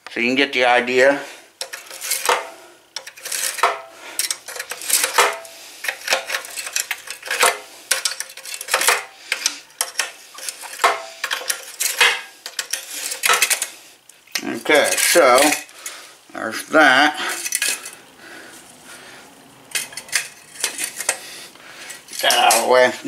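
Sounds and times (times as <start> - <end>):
pliers clinking against metal: 3.0 - 13.7, 14.3 - 15.7, 19.7 - 21.2, 22.1 - 22.8.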